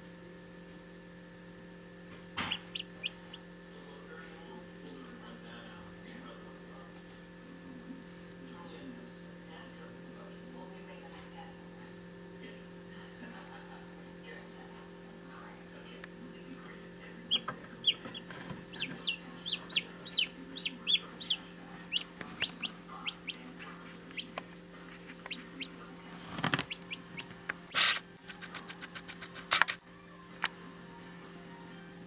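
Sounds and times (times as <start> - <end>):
electrical hum: 0.0 - 32.0
chick peeping: 2.4 - 3.4, 17.3 - 24.4, 25.1 - 25.8, 26.4 - 27.9.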